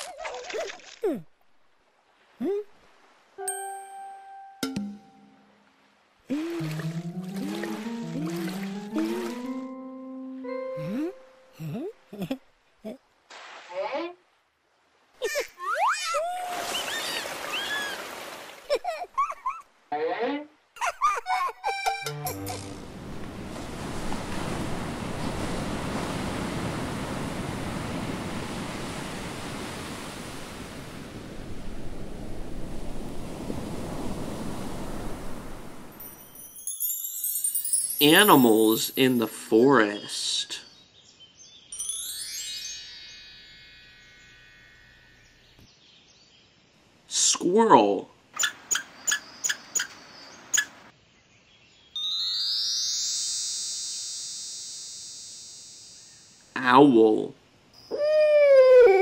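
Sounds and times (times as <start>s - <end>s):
surf waves rushing: 16.4s - 18.7s, 22.7s - 36.2s
squirrel chirping: 48.4s - 50.8s.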